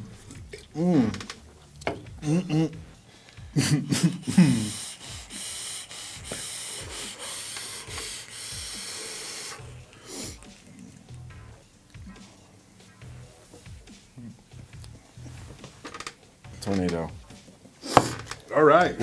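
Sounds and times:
vape hissing: 3.9 - 10.8, 17.8 - 18.3
breathy exhale: 4.3 - 10.6.

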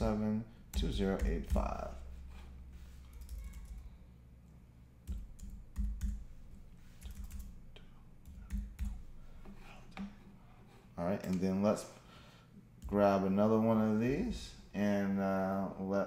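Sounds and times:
keyboard keys tapped: 0.7 - 1.9, 3.1 - 3.8, 5.1 - 6.3, 7.0 - 7.6, 8.2 - 9.0.

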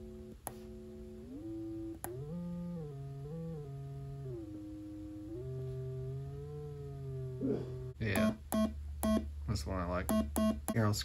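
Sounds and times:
synthesizer tone sliding pitch: 1.2 - 8.0.

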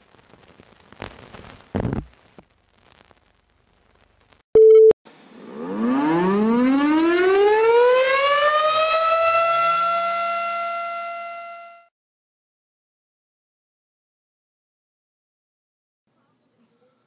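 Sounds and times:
loud single-pitched beep: 4.6 - 4.9
siren winding up: 5.5 - 11.9.

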